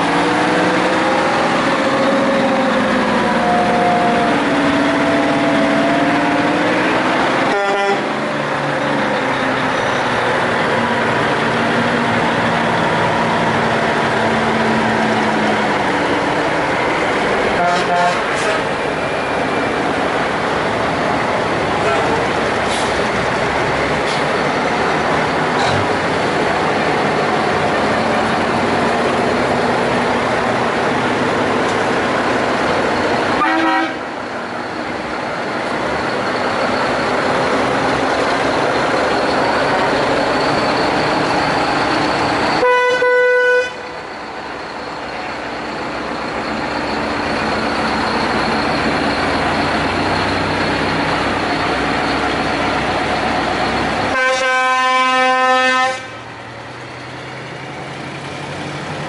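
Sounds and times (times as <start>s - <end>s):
heavy trucks driving past: 0.0s - 59.0s
truck horn blast: 7.4s - 8.2s, 17.6s - 18.7s, 33.3s - 34.1s, 42.6s - 43.9s, 54.1s - 56.3s.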